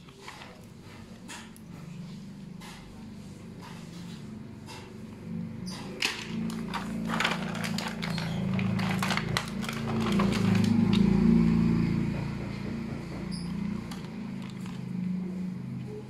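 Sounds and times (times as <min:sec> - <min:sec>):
plastic bag crinkling: 0:06.2 - 0:11.0.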